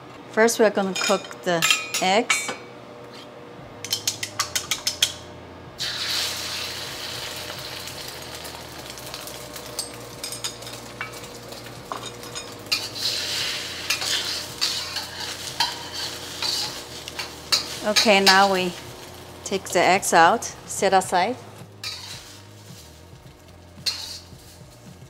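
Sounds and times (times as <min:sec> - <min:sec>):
metal spatula scraping wok: 0:05.8 - 0:19.9, 0:21.8 - 0:25.0
eggs sizzling in hot oil: 0:05.8 - 0:25.0.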